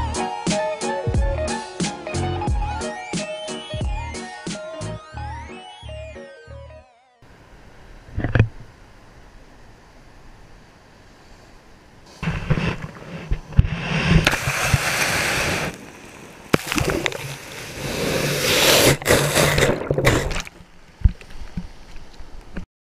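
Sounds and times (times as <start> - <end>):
water sloshing and splashing: 14.1 - 22.0.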